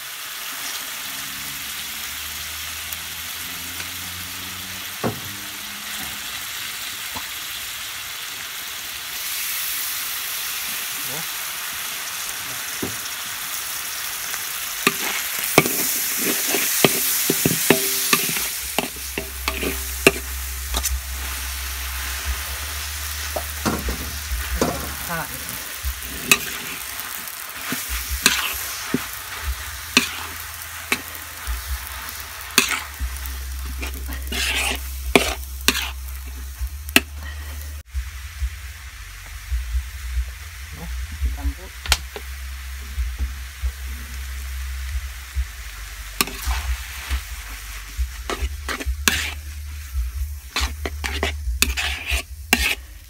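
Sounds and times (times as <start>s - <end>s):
food sizzling in a wok: 0.0s - 53.0s
metal spatula scraping a wok: 14.8s - 37.8s, 46.2s - 53.0s.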